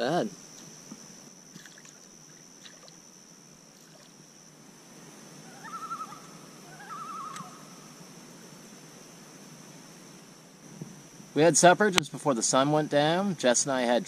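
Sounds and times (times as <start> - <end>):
loon tremolo calls: 0.0 - 8.3.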